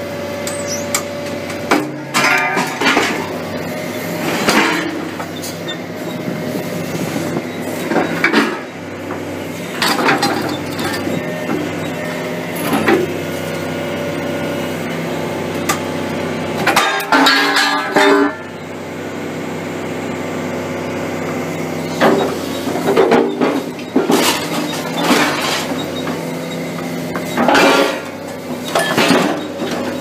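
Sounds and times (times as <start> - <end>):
excavator engine running: 0.0 - 30.0.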